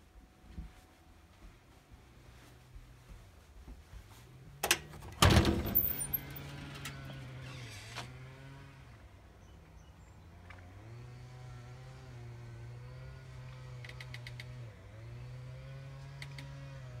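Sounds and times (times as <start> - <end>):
engine running: 4.7 - 17.0.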